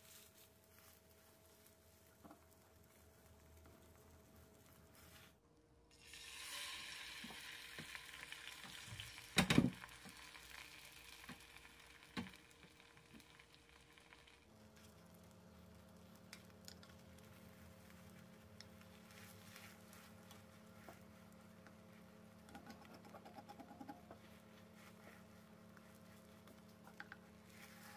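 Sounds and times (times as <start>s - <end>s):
egg sizzling in a frying pan: 5.9s - 19.2s.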